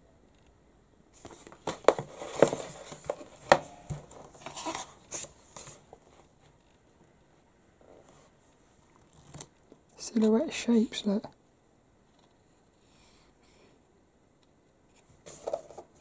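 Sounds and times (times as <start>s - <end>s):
magazine pages rustling: 1.2s - 6.3s, 15.2s - 16.0s.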